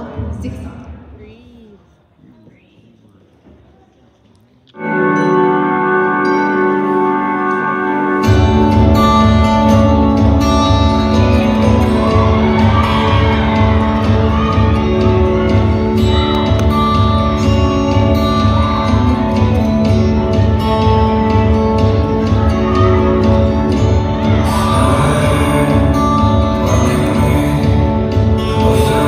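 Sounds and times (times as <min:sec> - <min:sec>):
person singing: 0:22.0 - 0:29.0.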